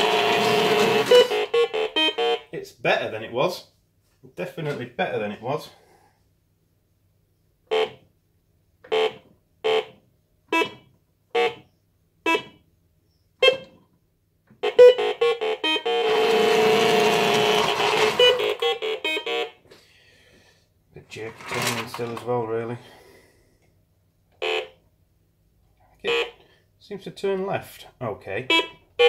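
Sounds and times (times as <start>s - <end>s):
toy electric motors running: 0.0s - 1.6s, 15.9s - 18.9s, 21.3s - 22.2s
toy keypad beeping: 0.0s - 2.4s, 14.6s - 19.5s.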